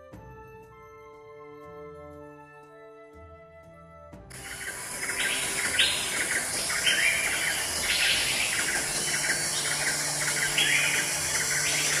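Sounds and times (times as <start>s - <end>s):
bird chirping: 4.3s - 12.0s
steady high hiss: 4.3s - 12.0s.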